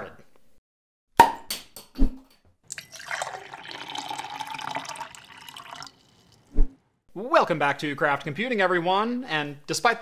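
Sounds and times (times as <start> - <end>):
liquid pouring into glass: 2.7 - 6.6.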